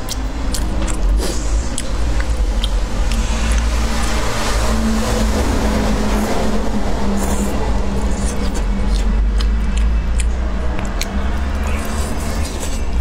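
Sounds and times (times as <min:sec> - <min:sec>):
noodles slurped: 0:00.0 - 0:13.0
steady low rumble: 0:00.0 - 0:13.0.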